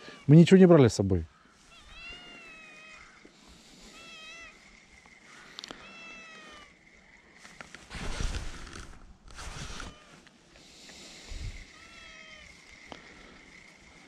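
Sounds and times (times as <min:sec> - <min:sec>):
cat meowing: 0:01.6 - 0:03.2, 0:03.9 - 0:04.6, 0:05.8 - 0:06.7, 0:11.7 - 0:12.6.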